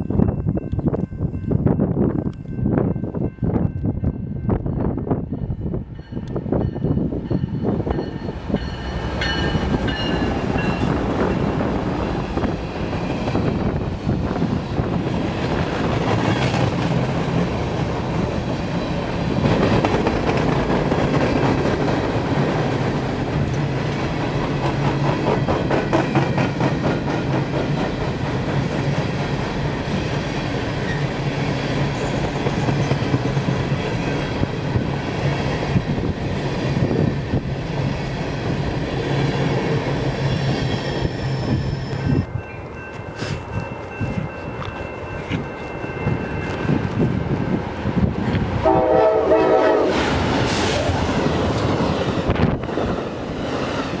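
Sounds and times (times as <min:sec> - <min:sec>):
diesel locomotives passing: 0:00.0 - 0:54.0
train wheels clacking on rail joints: 0:15.4 - 0:31.1.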